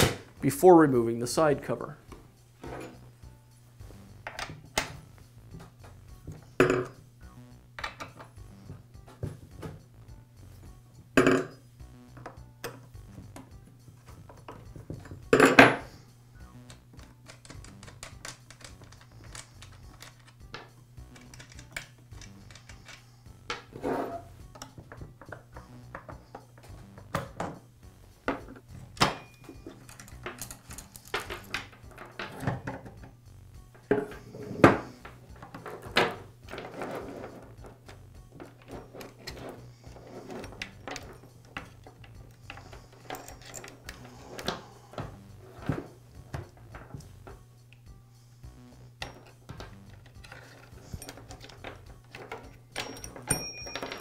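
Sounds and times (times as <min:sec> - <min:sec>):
quiet background music: 0:00.0 - 0:54.0
metal parts clinking on workbench: 0:29.0 - 0:32.8, 0:38.4 - 0:44.6, 0:49.0 - 0:54.0.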